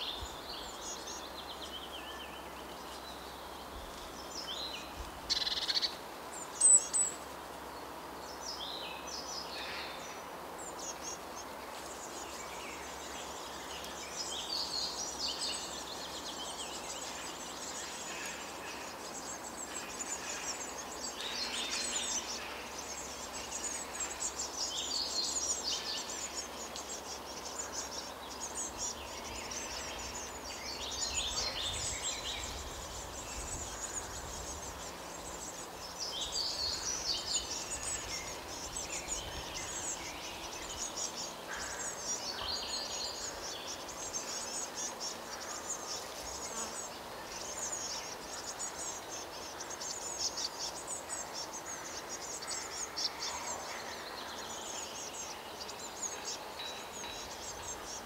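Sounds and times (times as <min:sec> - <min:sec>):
background hiss: 0:00.0 - 0:58.0.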